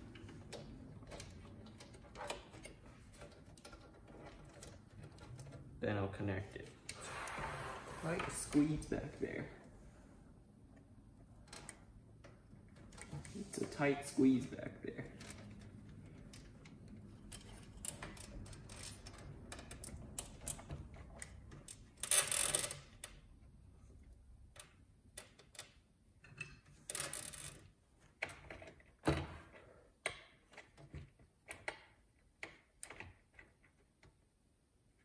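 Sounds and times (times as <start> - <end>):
cables rustling and scraping: 0.0 - 22.5.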